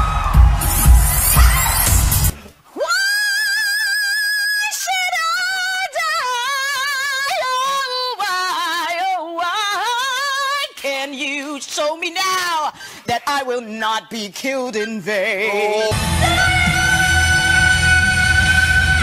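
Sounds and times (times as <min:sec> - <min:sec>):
woman singing a cappella: 0:02.8 - 0:19.0.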